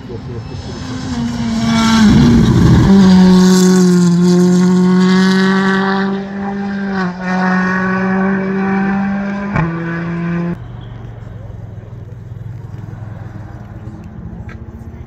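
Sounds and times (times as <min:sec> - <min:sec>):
rally car engine passing: 0:00.0 - 0:14.6.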